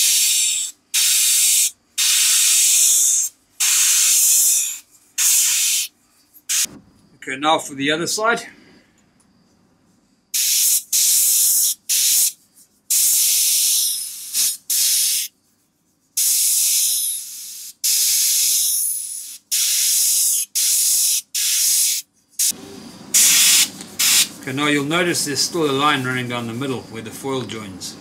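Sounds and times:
airbrush hissing bursts: 0.0 - 5.9, 6.5 - 6.7, 10.3 - 15.3, 16.2 - 24.4.

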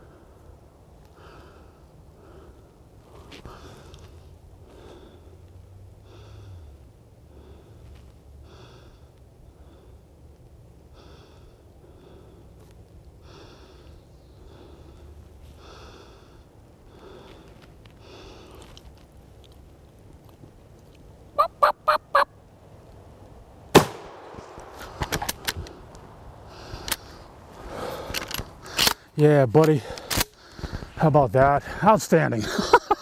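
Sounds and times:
turkey gobbling: 21.4 - 22.3
shotgun blast: 23.7 - 24.8.

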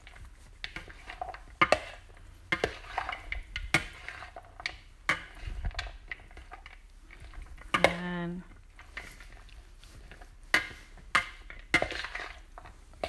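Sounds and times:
spoon scraping in bowl: 0.6 - 6.8, 11.5 - 12.8.

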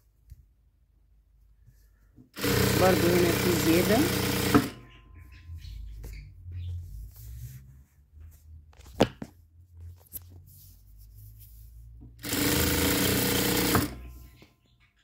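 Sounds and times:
sewing machine stitching: 2.4 - 4.8, 12.2 - 14.2.

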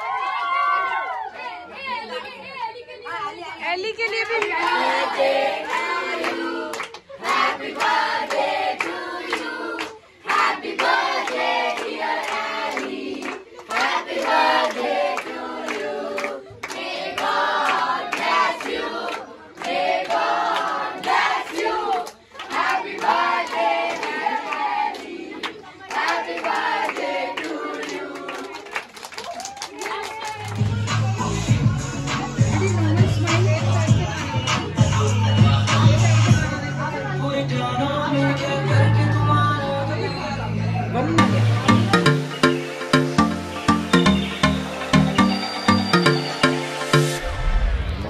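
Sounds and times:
hands clapping: 4.0 - 4.8, 5.6 - 31.0, 41.2 - 47.2.

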